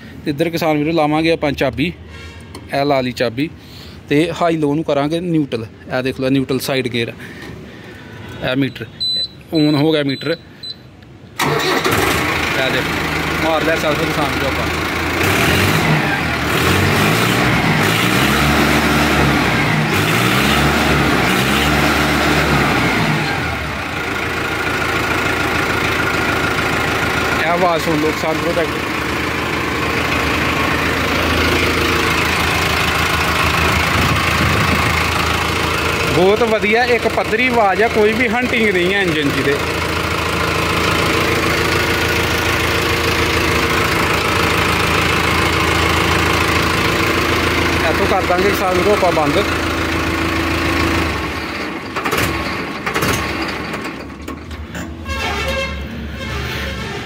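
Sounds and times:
tractor diesel engine revving: 11.4 - 57.0.

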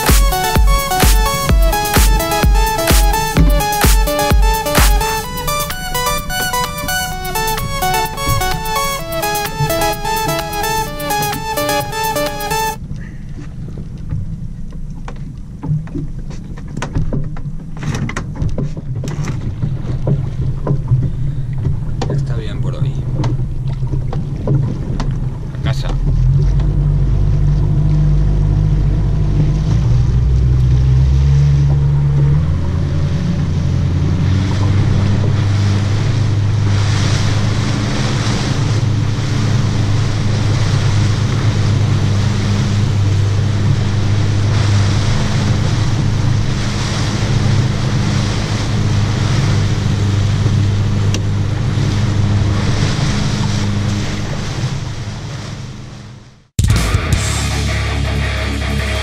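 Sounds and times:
water rushing past hull: 0.0 - 56.5
boat engine humming: 0.0 - 59.0.

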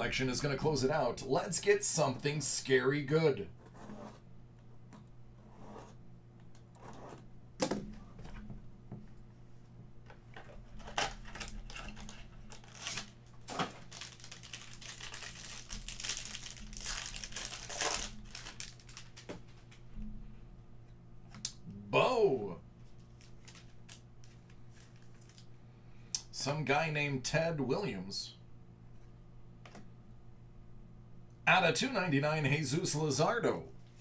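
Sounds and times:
plastic wrapper crinkling and tearing: 10.8 - 19.8, 23.0 - 25.5.

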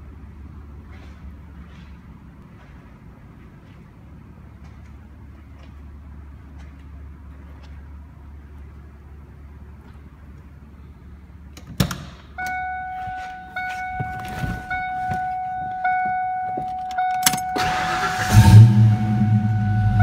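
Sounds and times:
car warning chime: 12.4 - 20.0
car engine starting: 15.8 - 20.0.

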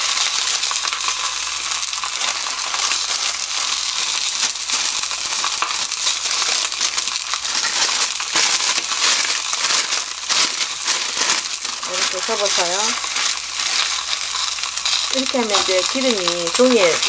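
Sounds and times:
oil sizzling in a pan: 0.0 - 17.0
paper crinkling: 7.4 - 17.0.

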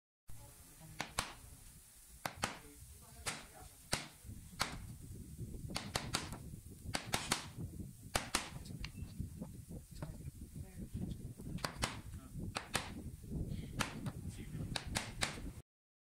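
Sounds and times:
wood chisel chopping into board: 2.2 - 2.6, 3.2 - 4.8, 5.7 - 7.6, 8.2 - 8.6, 11.6 - 12.0, 12.6 - 13.0, 13.8 - 14.2, 14.8 - 15.4.

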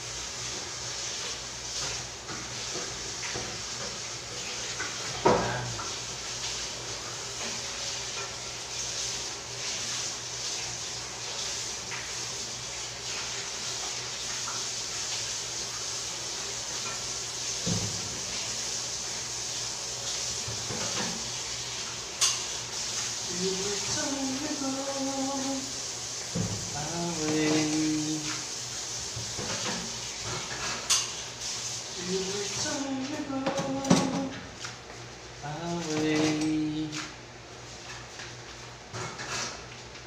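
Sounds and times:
tap water running into sink: 0.4 - 34.5
pan knocking against sink: 33.4 - 34.4.

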